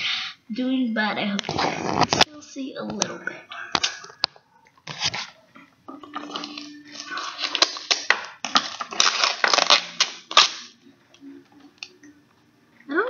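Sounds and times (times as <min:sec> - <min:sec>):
paper wrapping tearing and crumpling: 0:04.8 - 0:05.4, 0:06.2 - 0:10.8.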